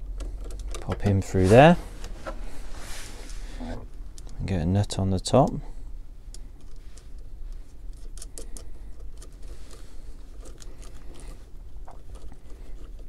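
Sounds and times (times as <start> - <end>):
small metal parts clicking: 7.9 - 11.4.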